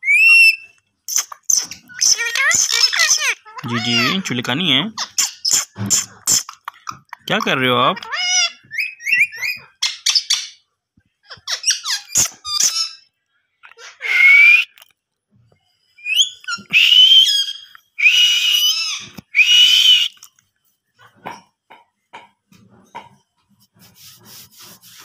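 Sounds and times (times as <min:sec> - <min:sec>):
parakeet chirping and squeaking: 0:00.0 - 0:10.6, 0:11.2 - 0:13.1, 0:18.5 - 0:19.1
parakeet squawking: 0:00.0 - 0:10.6, 0:11.3 - 0:14.7.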